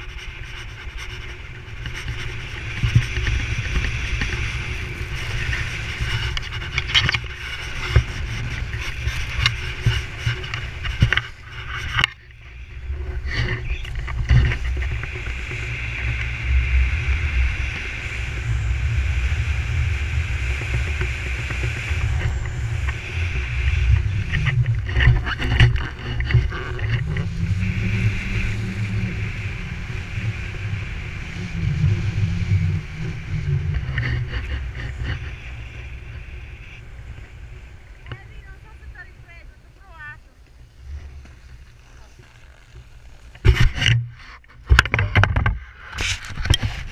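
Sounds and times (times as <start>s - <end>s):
wind buffeting microphone: 0.0s - 46.9s
skis hissing on snow: 0.1s - 6.4s.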